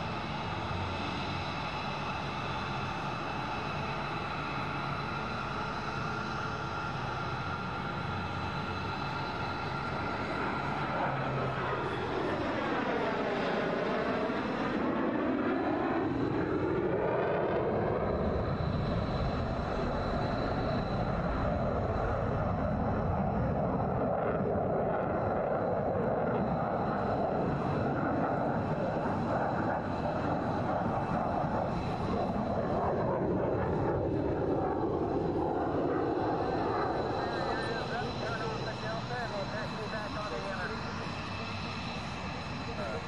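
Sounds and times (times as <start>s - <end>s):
fighter jet passing: 0.0s - 43.0s.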